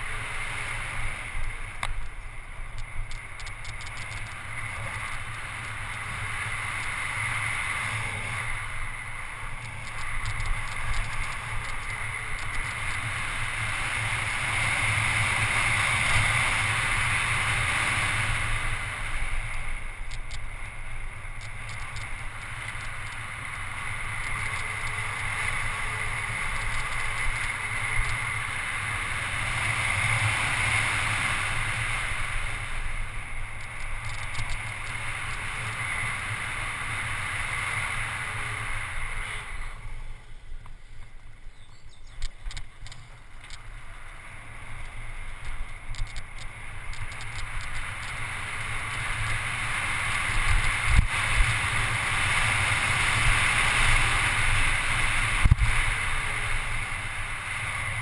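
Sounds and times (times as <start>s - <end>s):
tyre noise on asphalt: 0.0s - 58.0s
wind rushing over camera: 0.0s - 58.0s
clicks: 42.1s - 43.7s, 44.8s - 48.2s.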